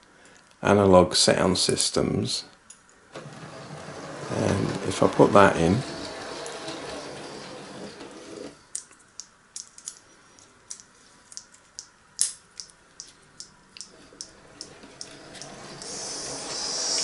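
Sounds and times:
faint mechanical running noise: 3.0 - 17.0
fingers clicking small parts: 10.7 - 16.0.

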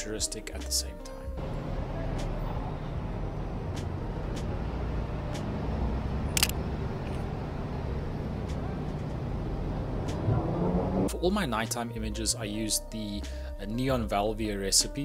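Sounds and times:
street traffic rumble: 1.4 - 11.1
camera shutter click: 6.3 - 6.6.

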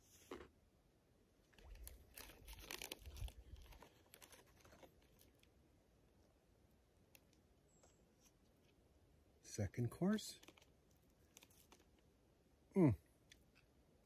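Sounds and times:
plastic package crinkling: 1.5 - 5.5, 10.4 - 12.0.

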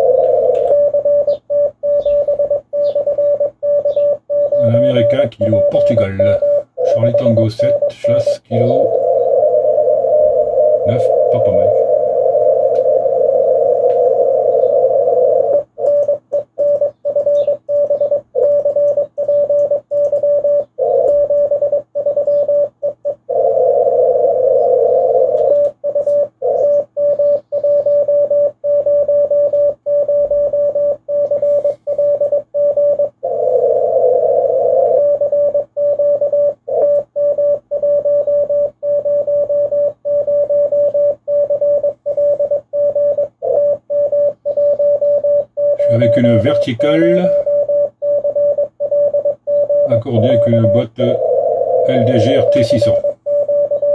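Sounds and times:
morse code tone: 0.0 - 53.9
radio hiss: 4.6 - 15.2, 45.8 - 47.6, 49.8 - 53.2.

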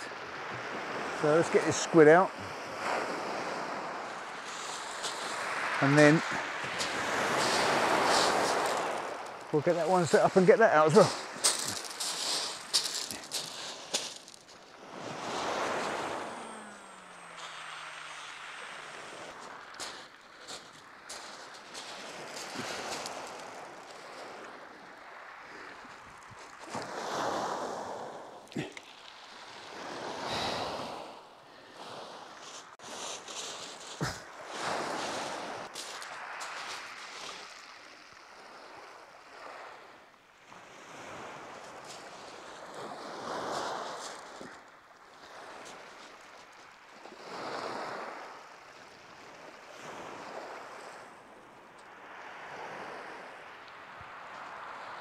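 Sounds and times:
waves breaking on shingle beach: 0.0 - 55.0.

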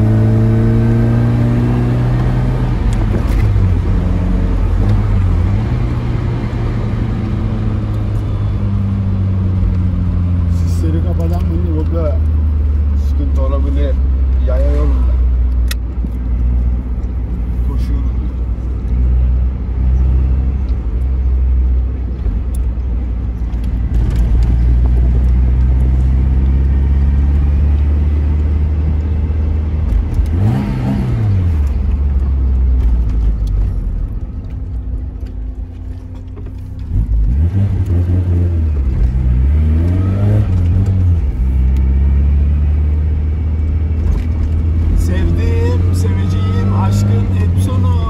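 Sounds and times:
car engine revving from cabin: 0.0 - 13.7, 29.9 - 32.0, 36.8 - 48.0.

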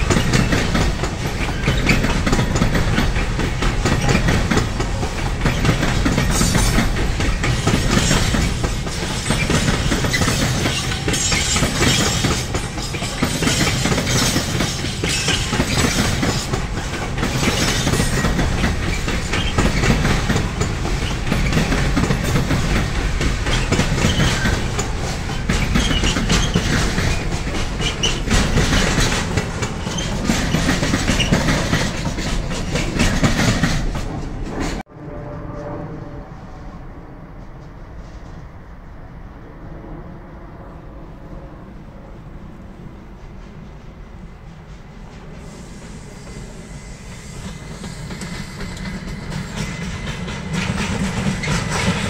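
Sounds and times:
train wheels clattering over rail joints: 0.0 - 34.8, 47.2 - 52.0.

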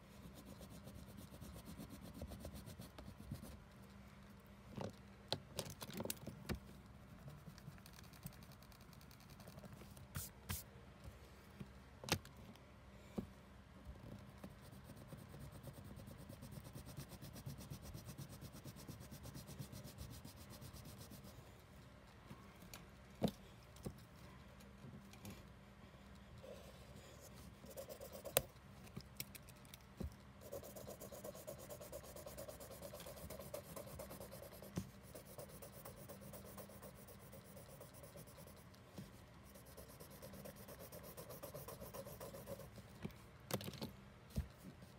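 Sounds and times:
pen scribbling on paper: 30.4 - 38.6, 39.5 - 42.7.

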